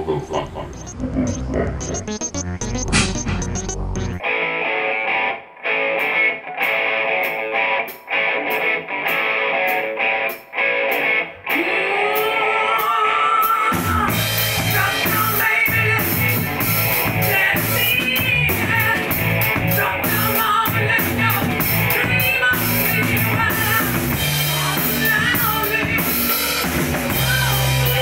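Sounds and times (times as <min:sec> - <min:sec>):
electric guitar riff: 0:00.9 - 0:28.0
funk-rock band groove: 0:02.0 - 0:11.4, 0:13.5 - 0:28.0.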